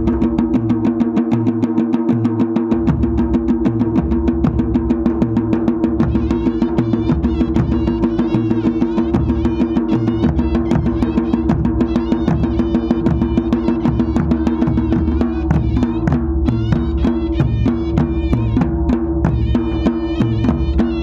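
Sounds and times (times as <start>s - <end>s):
drums beaten with sticks: 0.0s - 21.0s
high wavering wind instrument melody: 6.1s - 21.0s.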